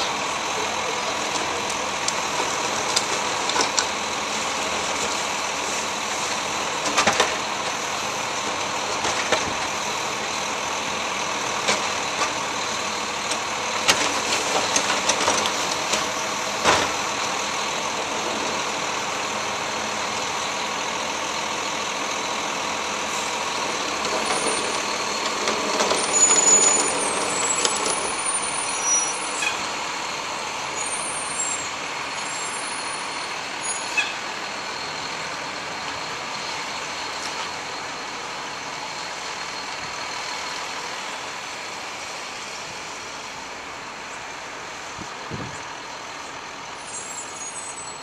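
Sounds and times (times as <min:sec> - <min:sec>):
garbage truck engine running: 0:00.0 - 0:48.0.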